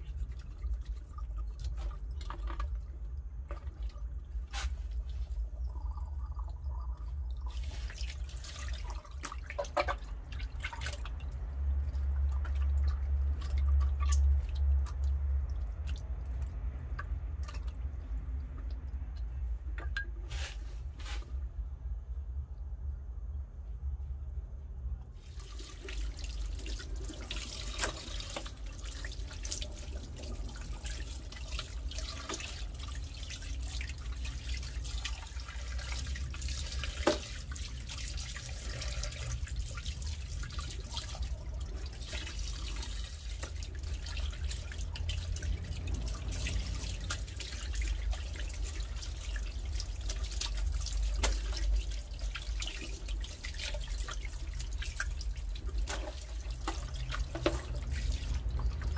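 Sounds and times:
water splashing and dripping: 0:00.0 - 0:21.2, 0:25.2 - 0:58.9
water running from hose: 0:07.5 - 0:09.2, 0:25.2 - 0:58.9.

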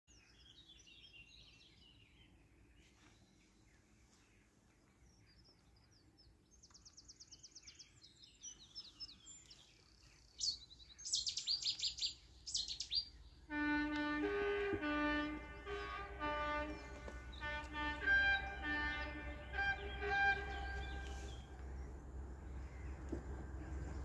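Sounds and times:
songbirds singing: 0:00.1 - 0:24.0
train horn: 0:13.5 - 0:21.7.

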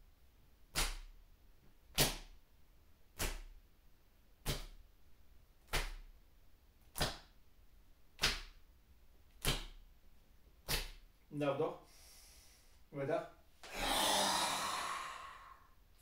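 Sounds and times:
palms slapping bare skin: 0:00.7 - 0:01.2, 0:01.9 - 0:02.4, 0:03.1 - 0:03.6, 0:04.4 - 0:04.9, 0:05.6 - 0:06.2, 0:06.8 - 0:07.4, 0:08.1 - 0:08.6, 0:09.3 - 0:09.9, 0:10.6 - 0:11.1.

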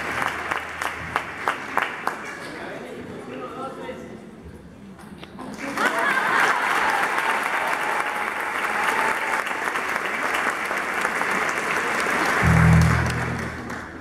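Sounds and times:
audience applauding: 0:00.0 - 0:02.7, 0:05.5 - 0:14.0
low droning hum: 0:12.4 - 0:14.0.

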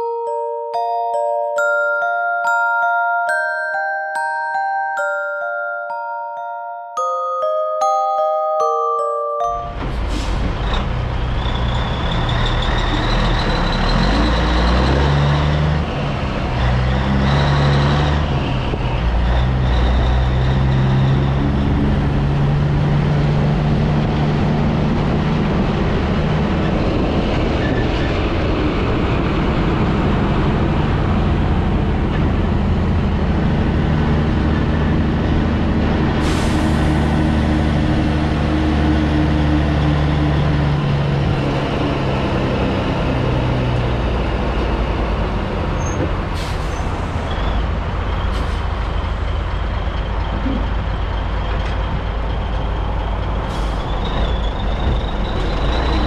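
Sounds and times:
truck diesel engine pulling away: 0:09.7 - 0:56.0.

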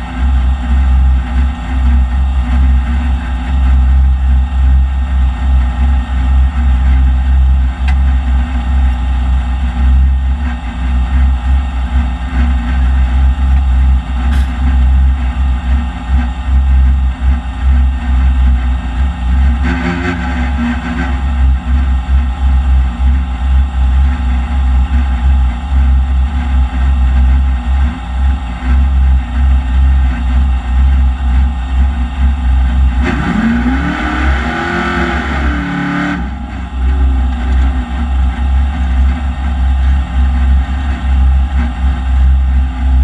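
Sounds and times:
loud engine idling from inside car: 0:00.0 - 0:43.0.

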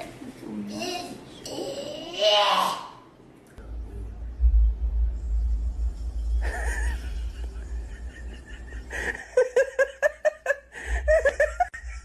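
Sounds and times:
person laughing: 0:06.4 - 0:12.0.

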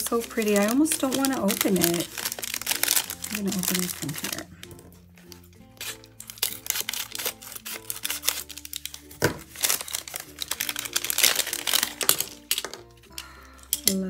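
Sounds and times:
foil wrapper crinkling: 0:00.0 - 0:14.0
soft background music: 0:00.0 - 0:14.0
scissors cutting: 0:00.2 - 0:09.0.

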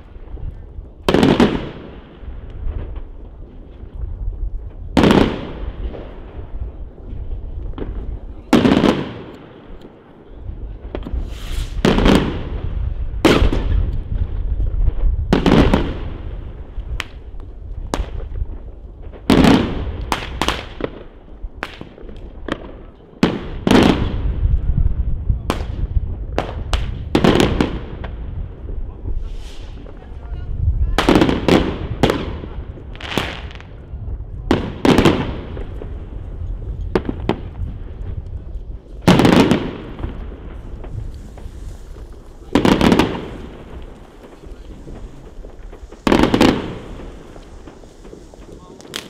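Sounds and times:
fireworks bangs echoing: 0:00.0 - 0:49.0
small firework pops: 0:07.5 - 0:10.0, 0:10.8 - 0:12.5, 0:13.2 - 0:16.1, 0:16.7 - 0:24.2, 0:25.4 - 0:28.2, 0:30.9 - 0:49.0.

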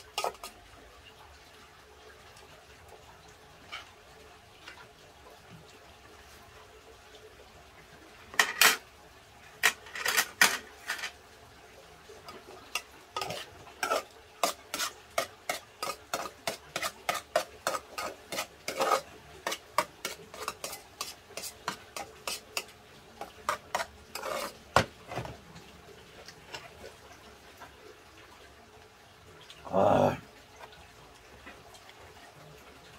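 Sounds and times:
spoon scraping in a pot: 0:00.0 - 0:00.6, 0:12.7 - 0:24.8.

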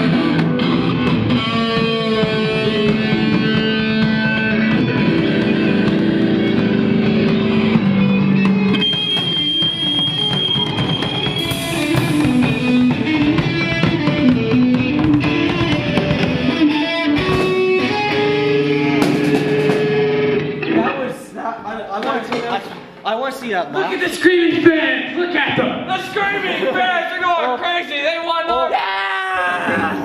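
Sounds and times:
drum kit: 0:00.0 - 0:20.8
held high guitar note: 0:00.0 - 0:21.0
electric guitars: 0:00.0 - 0:21.2.

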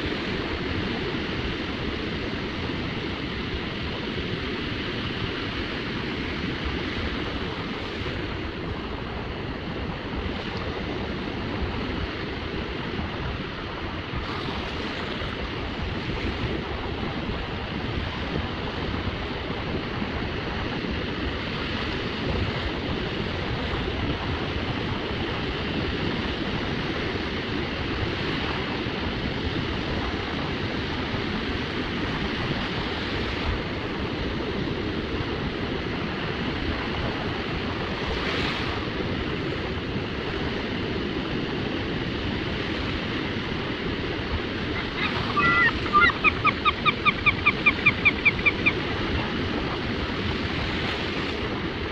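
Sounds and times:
waves washing onto beach: 0:00.0 - 0:51.9
wind on microphone: 0:00.0 - 0:51.9.

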